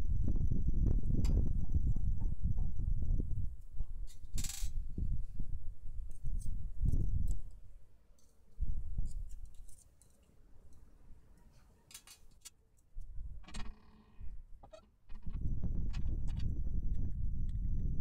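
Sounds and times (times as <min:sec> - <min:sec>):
metallic clicks of small parts: 0:04.1 - 0:04.8, 0:06.1 - 0:07.6, 0:09.0 - 0:13.8
hands handling parts on table: 0:11.5 - 0:12.6.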